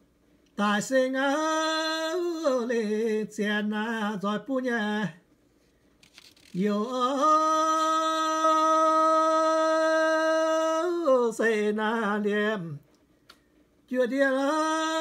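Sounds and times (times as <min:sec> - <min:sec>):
man chanting: 0:06.6 - 0:12.8, 0:13.9 - 0:15.0.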